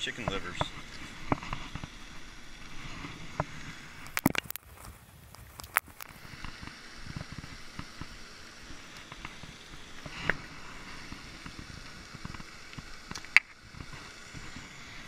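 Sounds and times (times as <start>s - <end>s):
fountain spray hissing: 0.0s - 15.0s.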